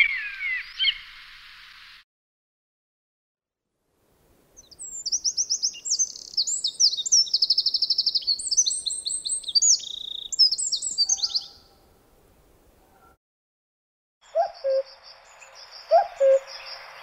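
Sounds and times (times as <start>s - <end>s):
wren singing trills: 4.6s - 11.7s, 14.2s - 17.0s.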